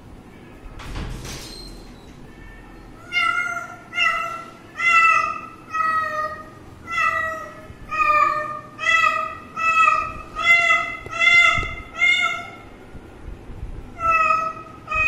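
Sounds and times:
cat meowing: 2.4s - 12.6s, 14.0s - 15.0s.

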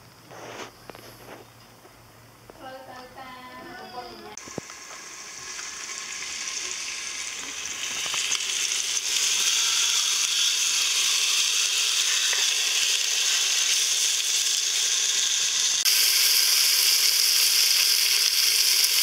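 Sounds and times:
steaks sizzling in a pan: 4.4s - 19.0s.

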